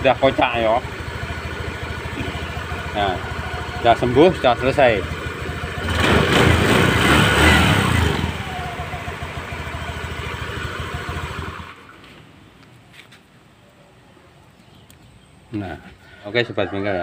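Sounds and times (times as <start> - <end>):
scooter engine running: 0.0 - 12.2.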